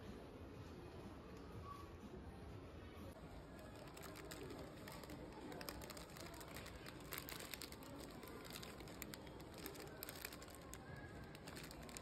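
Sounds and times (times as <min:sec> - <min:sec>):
tissue paper and cellophane crinkling: 0:03.2 - 0:12.0.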